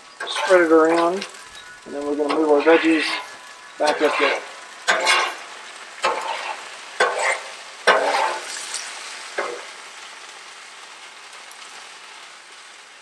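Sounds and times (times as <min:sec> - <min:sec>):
vegetables sizzling in oil: 0:00.0 - 0:13.0
metal spatula scraping griddle: 0:00.2 - 0:09.7.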